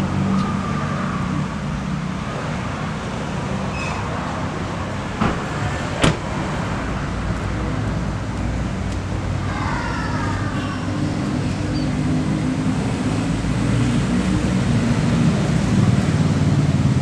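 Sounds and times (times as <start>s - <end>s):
car door latch clicking: 5.2s - 6.3s.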